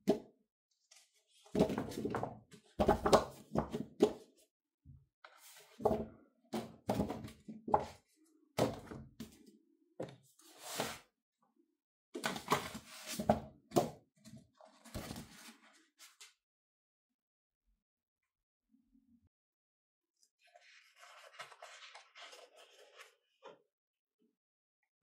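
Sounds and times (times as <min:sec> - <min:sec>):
paper and card sliding: 0:10.5 - 0:11.0.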